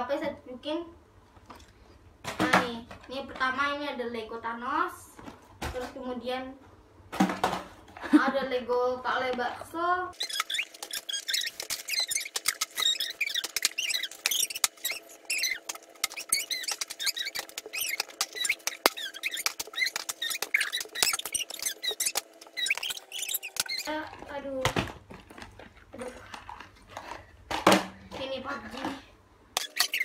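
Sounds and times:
sped-up child's voice squeaking: 0:10.2 - 0:24.0, 0:29.7 - 0:30.0.

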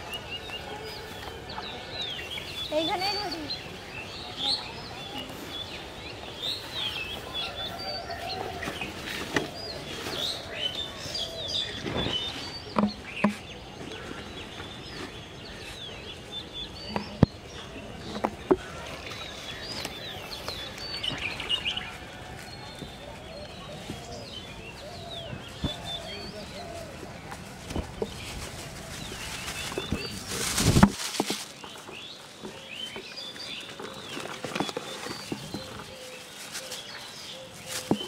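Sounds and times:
small birds chirping: 0:00.0 - 0:38.0
sharp clicks and knocks: 0:12.8 - 0:13.4.

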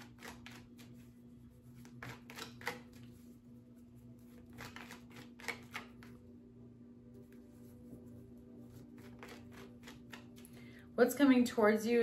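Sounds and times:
cards being shuffled: 0:00.0 - 0:03.2, 0:04.2 - 0:06.2, 0:08.7 - 0:10.6
faint steady hum: 0:00.0 - 0:12.0.

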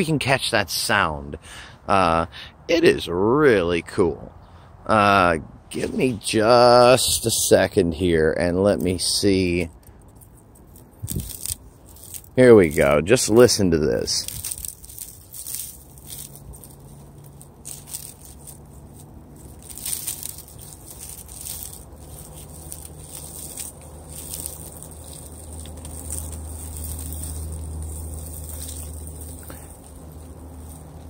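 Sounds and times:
low steady rumble: 0:04.9 - 0:31.0
icy pine needles clinking: 0:05.7 - 0:31.0.

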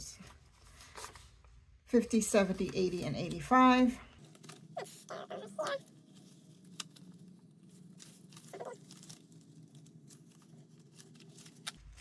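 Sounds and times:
banknotes rustling: 0:00.0 - 0:12.0
faint steady hum: 0:00.0 - 0:12.0
bills flicking: 0:04.3 - 0:12.0.

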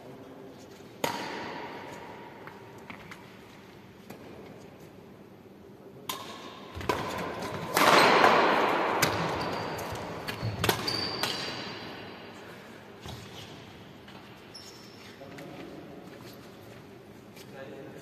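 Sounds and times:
rackets striking shuttlecock: 0:01.0 - 0:03.2, 0:06.0 - 0:12.0.

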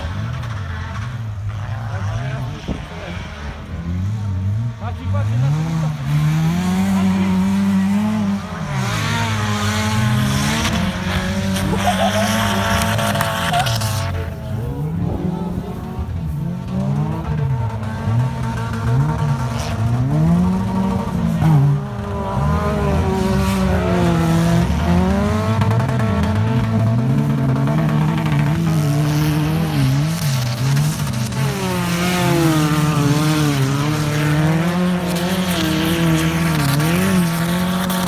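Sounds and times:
race car engines revving: 0:00.0 - 0:38.0.

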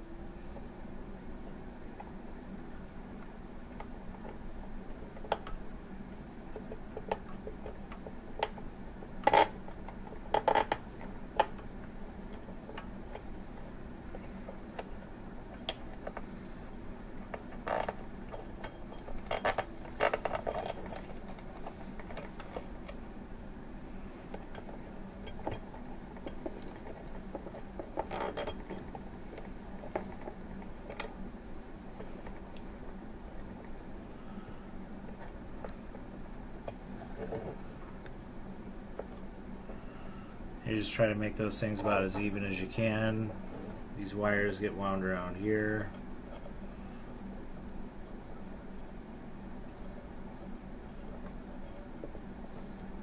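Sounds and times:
faint low hum: 0:00.0 - 0:53.0
clicks and rattles of glass and plastic: 0:24.4 - 0:31.1.

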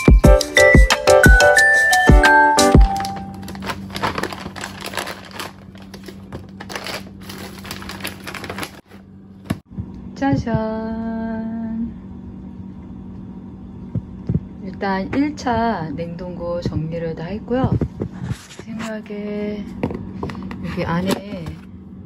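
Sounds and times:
plastic drawers clicking: 0:02.8 - 0:08.8
plastic bag crinkling: 0:02.8 - 0:08.9
steady low hum: 0:02.8 - 0:22.0.

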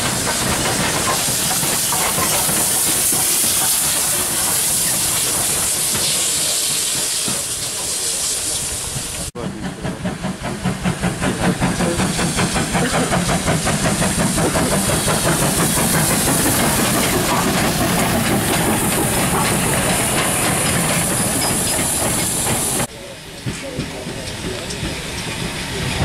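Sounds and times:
steam hissing: 0:00.0 - 0:26.0
steam locomotive exhaust chuffs: 0:00.0 - 0:26.0.

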